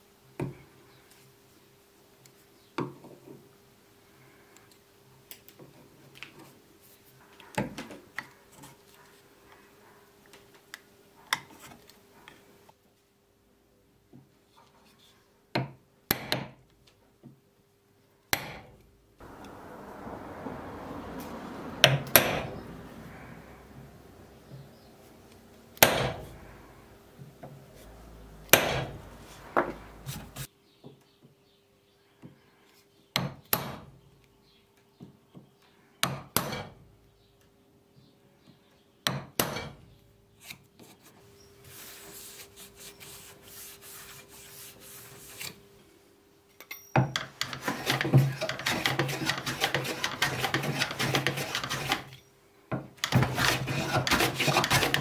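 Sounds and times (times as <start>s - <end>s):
hand tool scraping wood: 19.2s - 20.3s, 21.2s - 30.5s, 40.4s - 45.6s, 47.2s - 52.3s, 53.0s - 55.0s.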